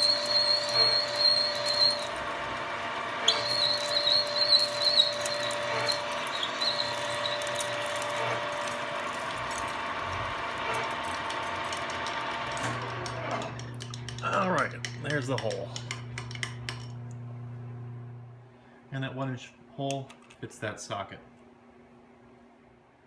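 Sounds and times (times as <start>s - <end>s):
drill bit squealing in metal: 0.0s - 15.6s
spindle whine: 0.0s - 18.6s.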